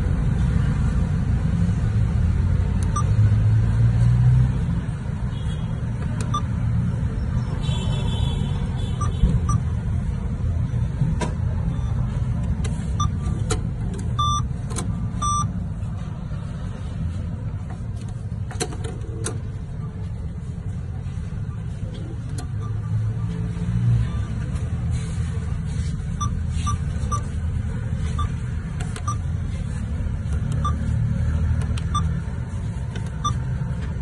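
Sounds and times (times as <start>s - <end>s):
keypad beeps: 2.8s - 3.1s, 6.1s - 6.5s, 9.0s - 9.7s, 11.7s - 12.1s, 12.8s - 15.6s, 21.8s - 24.7s, 26.1s - 27.4s, 28.0s - 29.3s, 30.4s - 31.0s, 31.7s - 32.2s, 33.1s - 33.5s
long machine beeps: 2.9s - 3.1s, 6.3s - 6.5s, 9.0s - 9.7s, 11.7s - 12.1s, 12.9s - 13.4s, 14.1s - 14.6s, 15.2s - 15.6s, 22.4s - 24.6s, 26.1s - 27.4s, 28.0s - 28.4s, 29.0s - 29.3s, 30.6s - 30.9s, 31.9s - 32.1s, 33.2s - 33.5s.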